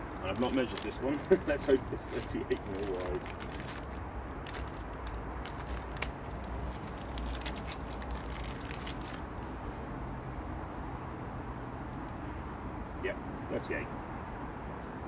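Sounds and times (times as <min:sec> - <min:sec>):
plastic bag crinkling: 0:00.2 - 0:09.2.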